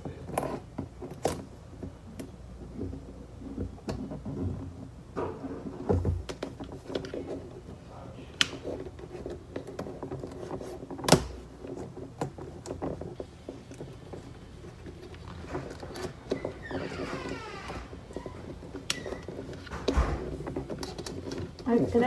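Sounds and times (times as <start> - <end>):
hands rubbing contact paper: 6.6 - 17.2.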